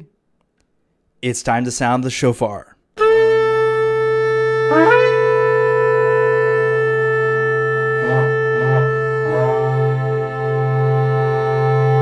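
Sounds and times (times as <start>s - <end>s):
shofar blast: 3.0s - 12.0s.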